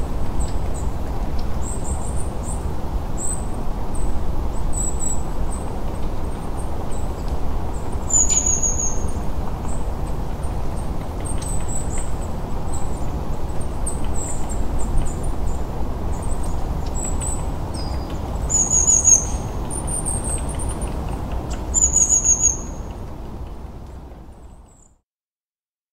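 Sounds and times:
small birds chirping: 6.3 - 23.0.

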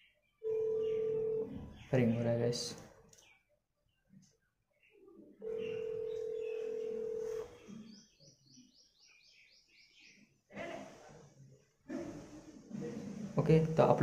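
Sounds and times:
phone ringback tone: 0.4 - 1.6, 5.4 - 7.6.

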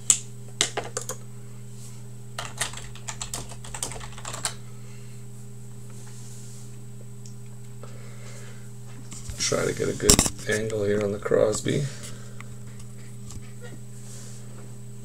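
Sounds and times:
computer keyboard typing: 2.4 - 4.6.

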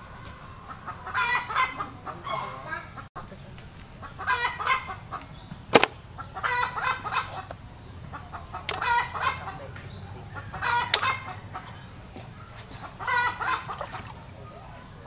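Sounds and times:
chicken clucking: 0.1 - 5.5, 6.2 - 15.0
sharp knocks: 5.7 - 6.0.

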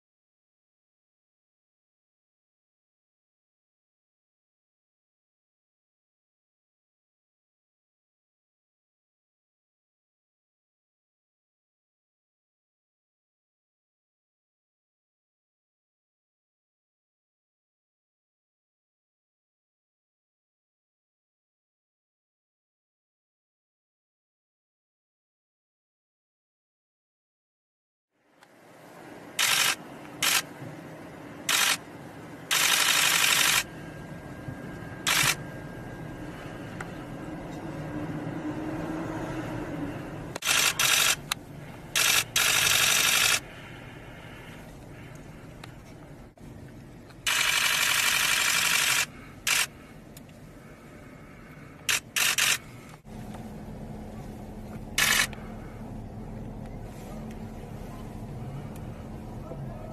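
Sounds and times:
low street background: 28.2 - 59.9
steady low hum: 28.4 - 59.9
camera shutter rapid clicks: 29.4 - 30.5, 31.5 - 31.8, 32.5 - 33.7, 35.1 - 35.4, 40.4 - 41.4, 42.0 - 43.4, 47.2 - 49.7, 51.9 - 52.7, 55.0 - 55.4.

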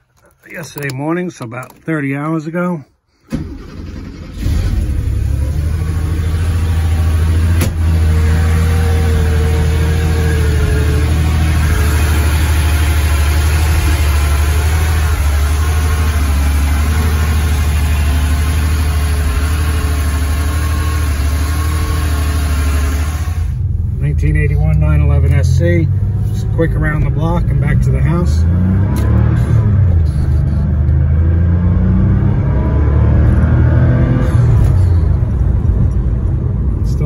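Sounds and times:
car engine idling: 3.3 - 28.4.

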